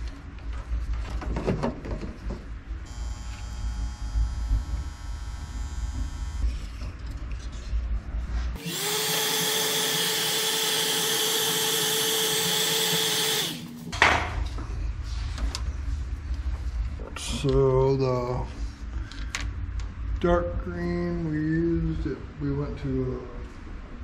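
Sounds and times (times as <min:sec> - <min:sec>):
electric power tool motor: 0:02.9 - 0:06.6, 0:08.6 - 0:13.7.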